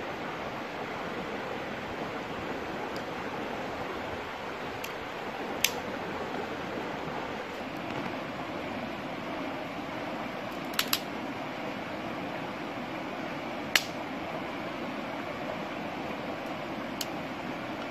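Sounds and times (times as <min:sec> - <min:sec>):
shallow river flowing over rocks: 0:00.0 - 0:17.9.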